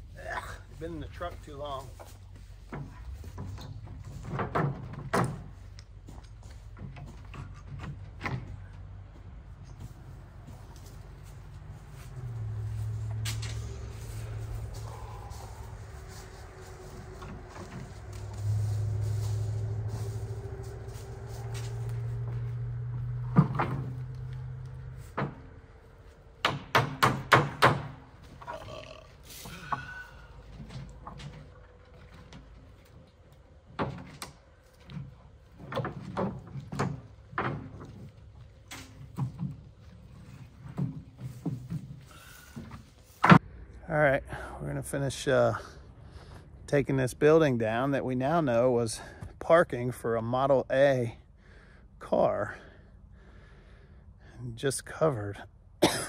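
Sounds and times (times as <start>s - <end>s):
low engine hum: 0.0s - 26.5s
sharp knocks on wood: 26.4s - 28.0s.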